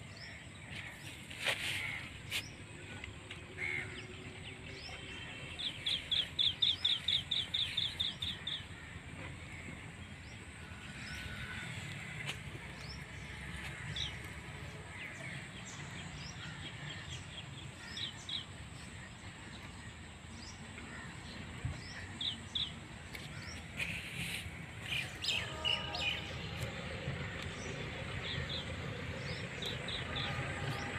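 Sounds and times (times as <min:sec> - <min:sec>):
low outdoor background noise: 0:00.0 - 0:30.9
small birds chirping: 0:04.8 - 0:08.8.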